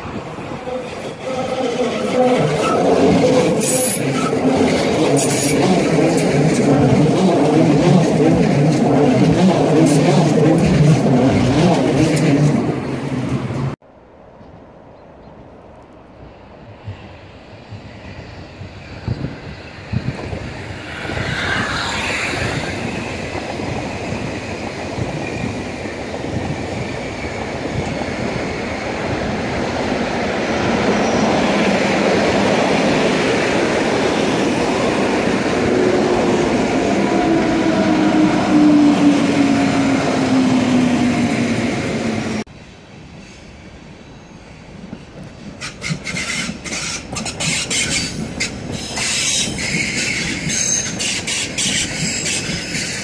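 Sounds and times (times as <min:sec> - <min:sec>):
train wheels rumbling on rail: 0:00.0 - 0:13.8, 0:16.2 - 0:53.0
electric locomotive whine: 0:00.0 - 0:53.0
wheels clicking over rail joints: 0:44.9 - 0:53.0.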